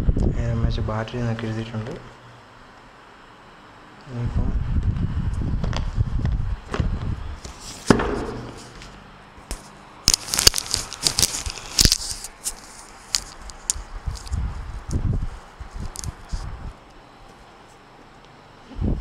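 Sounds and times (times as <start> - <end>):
plastic packaging crinkling: 8.6 - 14.4.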